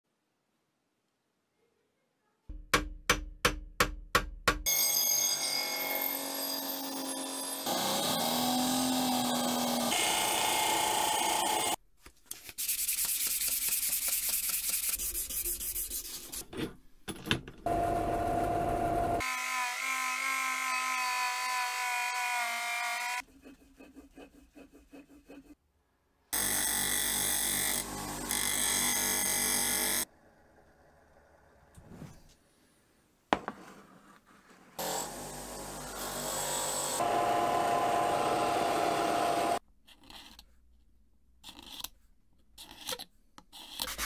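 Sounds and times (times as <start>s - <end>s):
bench grinder motor hum: 6.1s - 11.8s, 17.7s - 19.5s, 34.8s - 39.6s
drill press wheel whine: 17.7s - 19.2s, 34.8s - 39.6s.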